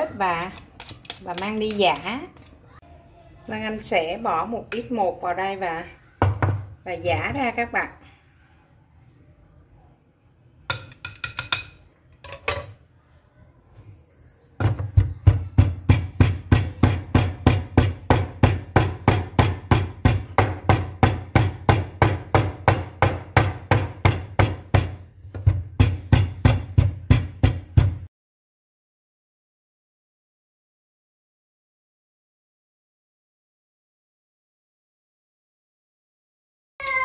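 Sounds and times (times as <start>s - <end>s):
wooden pestle pounding in mortar: 14.6s - 28.1s.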